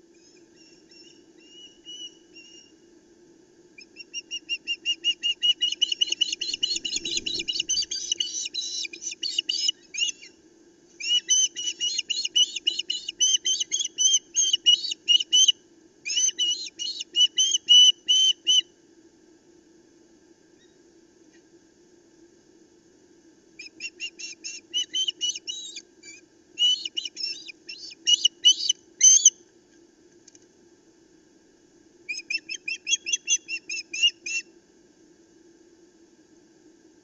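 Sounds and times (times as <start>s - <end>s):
ospreys whistled chirps: 0.2s - 2.7s, 3.8s - 10.3s, 11.0s - 15.5s, 23.6s - 29.4s.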